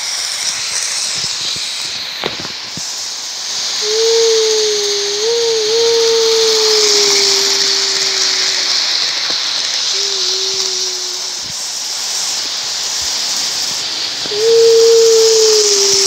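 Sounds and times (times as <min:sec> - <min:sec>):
wheels hissing on rails: 0:00.0 - 0:16.0
electric motor hum: 0:03.8 - 0:09.2.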